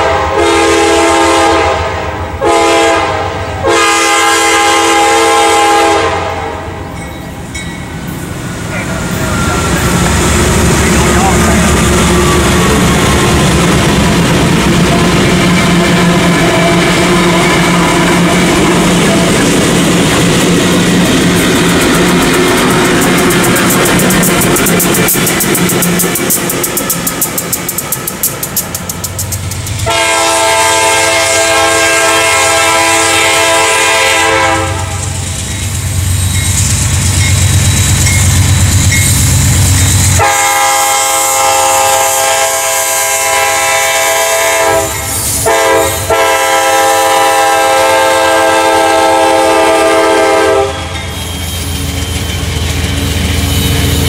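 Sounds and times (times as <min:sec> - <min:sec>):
locomotive air horn: 0:00.0 - 0:06.8, 0:14.8 - 0:19.4, 0:29.8 - 0:35.2, 0:40.1 - 0:51.0
train wheels clattering: 0:09.2 - 0:33.4, 0:34.5 - 0:42.1, 0:43.4 - 0:54.0.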